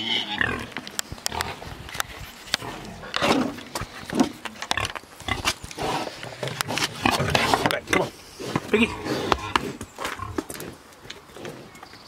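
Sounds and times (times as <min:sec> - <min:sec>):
pig grunting: 0:02.6 - 0:10.8.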